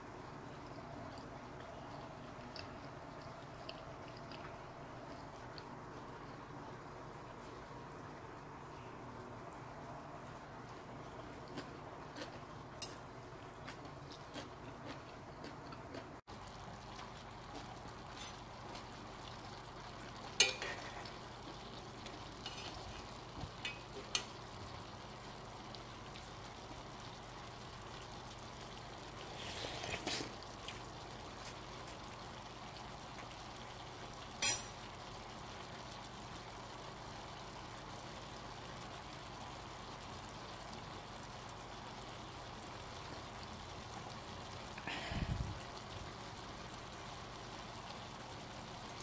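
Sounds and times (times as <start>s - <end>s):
background hiss: 17.9s - 49.0s.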